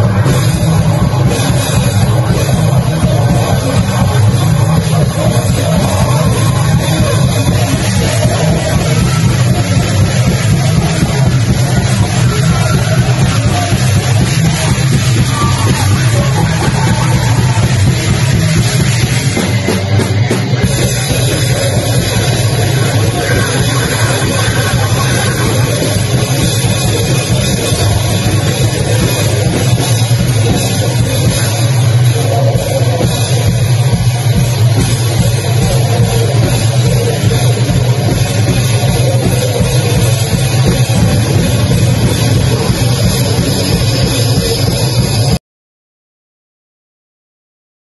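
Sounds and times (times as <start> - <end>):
distorted electric guitar: 0.0 - 45.4
pounding drum kit: 0.0 - 45.4
vocalist shouting: 22.4 - 28.2.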